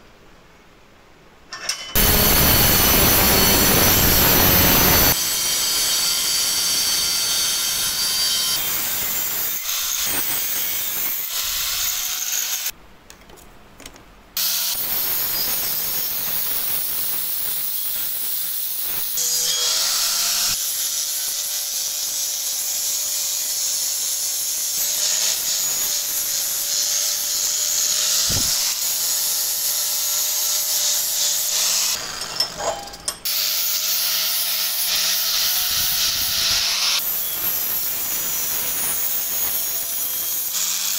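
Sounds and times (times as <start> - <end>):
angle grinder on metal: 1.5 - 12.7, 14.4 - 40.9
motor whine: 2.0 - 5.2.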